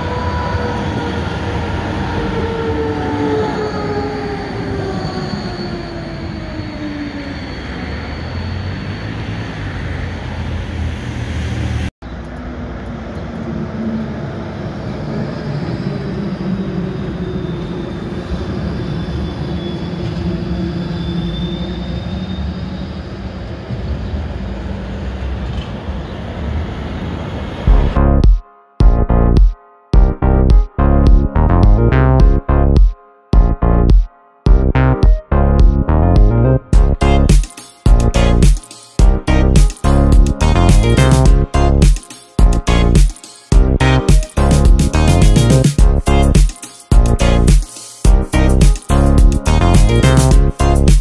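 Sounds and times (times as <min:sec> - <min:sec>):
tram wheels rumbling on rails: 0:00.0 - 0:27.9
tram motor whine: 0:00.0 - 0:28.2.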